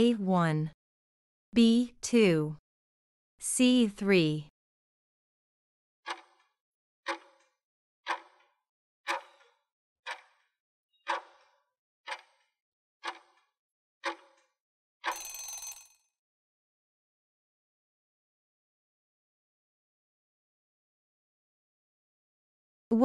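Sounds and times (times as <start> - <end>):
timer ticking: 8.1 - 8.4, 9.1 - 9.5, 10.1 - 10.3, 11.1 - 11.4, 12.1 - 12.4, 13.0 - 13.3
ringing alarm: 15.0 - 16.0.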